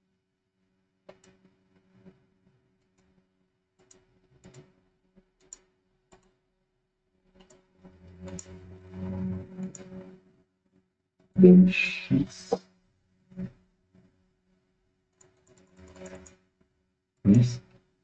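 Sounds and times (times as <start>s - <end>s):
low hum with hiss: 11.4s - 12.6s, 17.3s - 17.6s.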